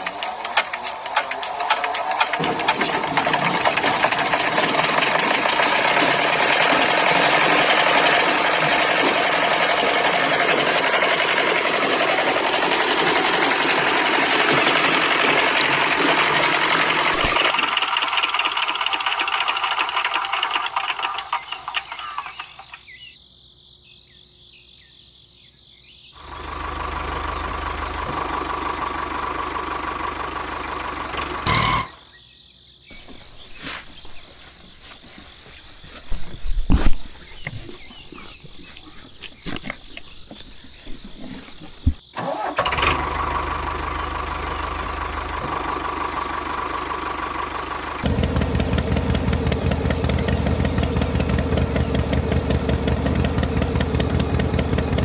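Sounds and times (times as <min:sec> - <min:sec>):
toy engine mechanical clatter: 0:00.0 - 0:23.0, 0:32.9 - 0:42.8.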